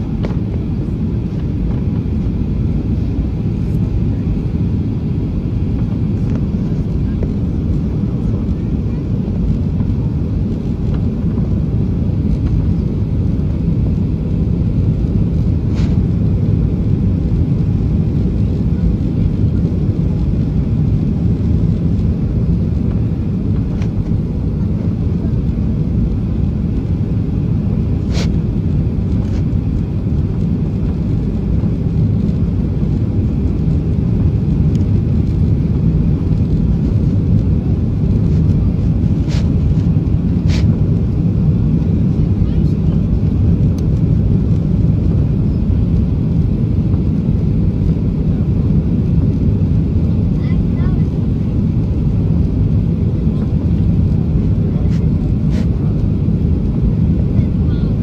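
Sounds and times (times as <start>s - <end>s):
jet engines rumbling in cabin: 0.0s - 58.0s
rushing air: 9.5s - 18.7s, 19.6s - 42.2s.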